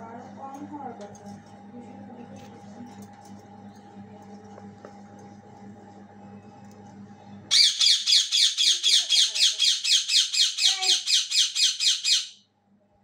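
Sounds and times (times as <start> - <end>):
parakeet screeching: 7.5 - 12.4.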